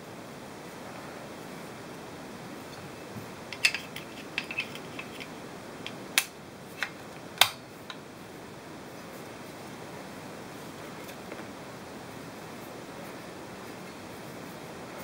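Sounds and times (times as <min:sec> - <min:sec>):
plastic parts clicking together: 0:03.5 - 0:08.0.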